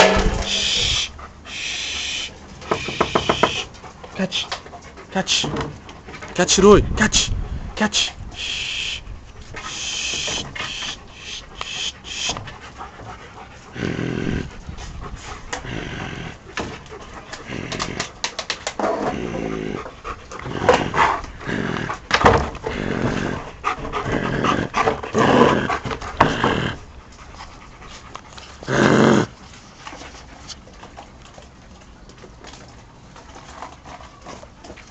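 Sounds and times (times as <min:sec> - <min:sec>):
dogs growling and barking: 0:00.0 - 0:06.4, 0:09.2 - 0:29.6.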